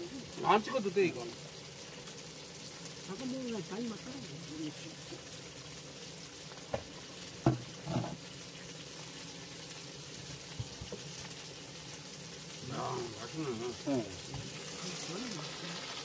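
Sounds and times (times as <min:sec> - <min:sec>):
fish sizzling in a pan: 0:00.0 - 0:16.0
sharp knocks: 0:06.7 - 0:08.1.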